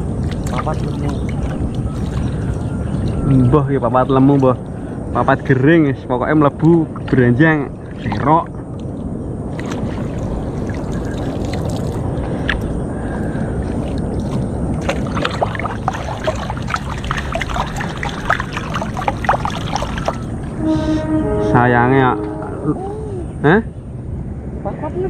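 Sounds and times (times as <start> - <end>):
small splashes and drips: 0.0 - 3.2, 7.8 - 20.4
water sloshing around wading person: 0.0 - 5.6, 6.9 - 21.2.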